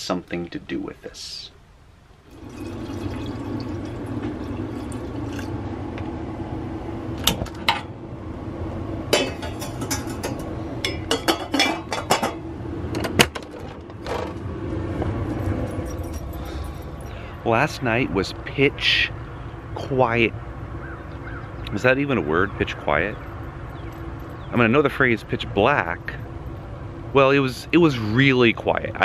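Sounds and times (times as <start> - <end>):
low rushing noise: 3.5 - 11.0
dishes and cutlery clinking: 9.2 - 12.4.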